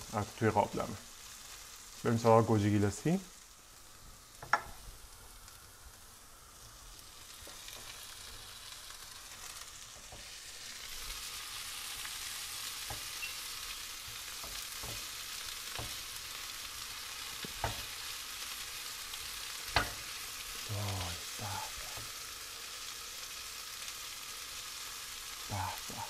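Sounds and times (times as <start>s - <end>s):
vegetables sizzling in a frying pan: 0.0s - 26.0s
spatula tapping a pan: 4.4s - 4.8s, 12.8s - 13.3s, 14.1s - 15.1s, 15.7s - 16.1s, 17.4s - 18.0s, 19.7s - 20.1s.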